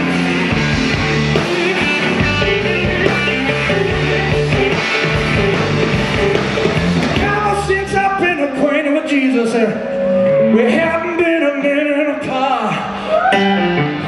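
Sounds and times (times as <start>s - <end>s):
electric guitars: 0.0s - 8.6s, 9.3s - 14.0s
drums: 0.0s - 9.5s
bass guitar: 0.0s - 14.0s
keyboards: 0.0s - 14.0s.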